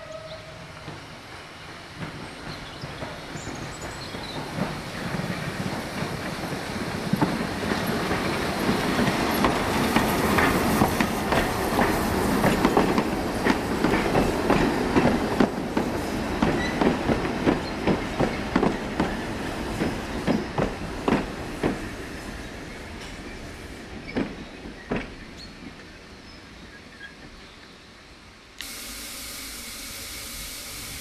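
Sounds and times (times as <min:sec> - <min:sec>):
steam locomotive passing: 0:00.0 - 0:26.1, 0:28.6 - 0:31.0.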